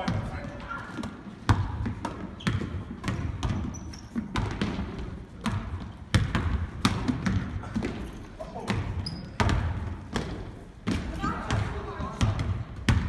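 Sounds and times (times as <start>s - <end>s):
basketball bouncing on hardwood: 0.0s - 13.0s.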